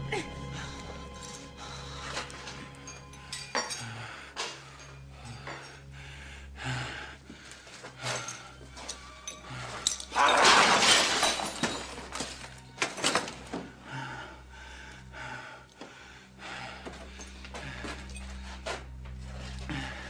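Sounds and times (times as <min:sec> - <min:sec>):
knocks and clinks: 0:02.1 - 0:05.8, 0:08.0 - 0:13.6
loud crash of something breaking: 0:10.3 - 0:12.0.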